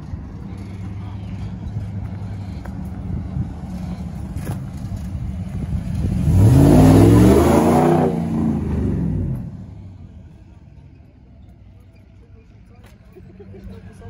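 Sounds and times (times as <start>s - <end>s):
low engine rumble: 0.0s - 14.0s
pickup truck accelerating past: 0.8s - 10.1s.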